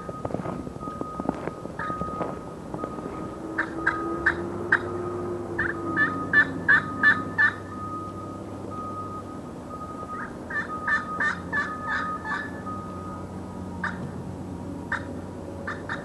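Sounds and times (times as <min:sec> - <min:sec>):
soft steady tone on slate: 0:00.0 - 0:04.0
turkey call yelps: 0:03.6 - 0:04.8, 0:05.6 - 0:07.6, 0:10.1 - 0:12.6, 0:15.7 - 0:16.0.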